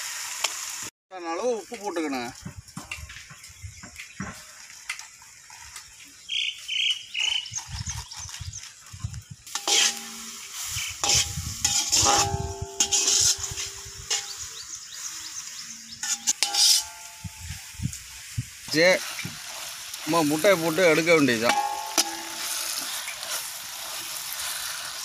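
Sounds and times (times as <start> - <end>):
light sizzle: 0.0 - 25.0
metal ladle scraping iron pan: 9.5 - 14.6, 15.5 - 17.8, 18.7 - 25.0.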